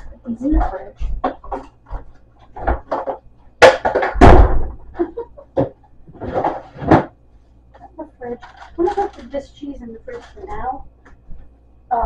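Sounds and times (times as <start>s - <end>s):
heavy thud: 3.6s - 4.8s.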